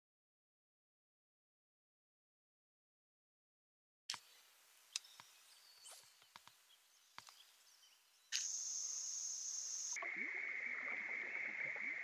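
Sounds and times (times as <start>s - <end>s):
high-pitched insect chorus: 8.3s - 10.0s.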